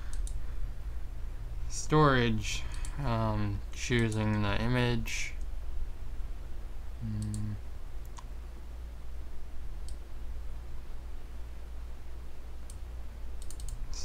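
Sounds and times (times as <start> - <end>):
computer mouse clicks: 0.0 - 0.4, 7.1 - 8.3, 9.8 - 10.0, 13.4 - 13.9
steady low hum: 0.0 - 14.0.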